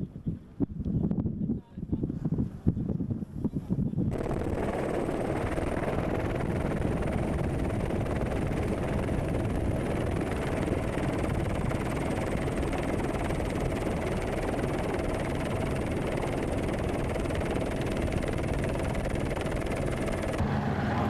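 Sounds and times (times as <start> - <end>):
wind buffeting microphone: 0.0 - 21.0
helicopter engine and rotor noise: 4.0 - 21.0.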